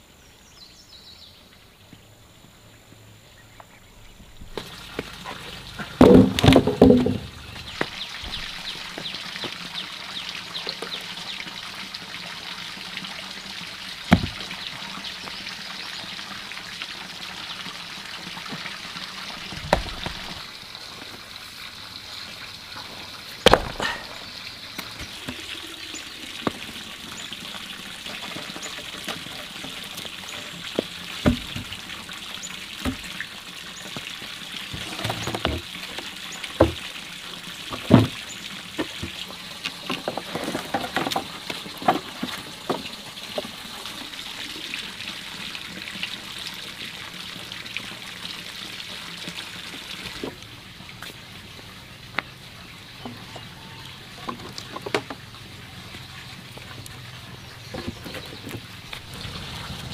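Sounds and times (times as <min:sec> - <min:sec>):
water pouring: 0:04.5 - 0:50.9, 0:58.6 - 0:59.9
knocks and clatters: 0:04.6 - 0:08.0.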